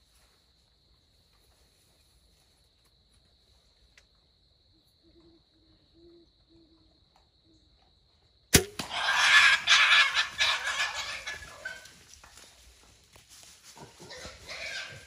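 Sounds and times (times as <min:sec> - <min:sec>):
bow shot crack: 0:08.5 - 0:09.1
hogs squealing: 0:08.8 - 0:12.0, 0:13.8 - 0:15.0.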